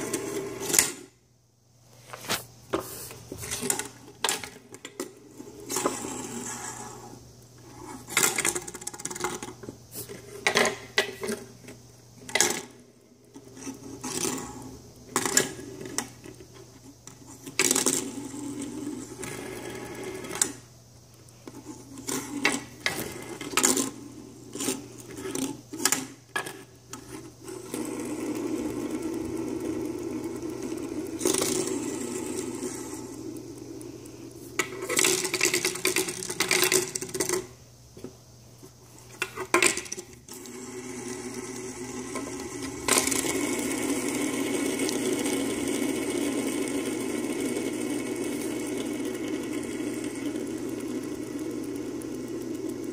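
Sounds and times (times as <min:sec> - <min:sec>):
fidget spinners whirring: 0:00.0 - 0:01.2, 0:01.9 - 0:37.6, 0:38.5 - 0:52.9
fidget spinners clacking: 0:03.2 - 0:37.6, 0:38.9 - 0:52.9.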